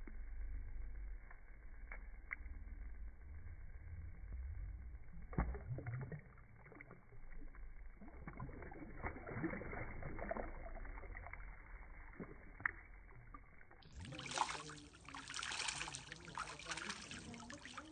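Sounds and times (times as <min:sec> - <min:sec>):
low rumble: 0:00.0 - 0:17.9
water splashing as fish feeds: 0:05.2 - 0:17.9.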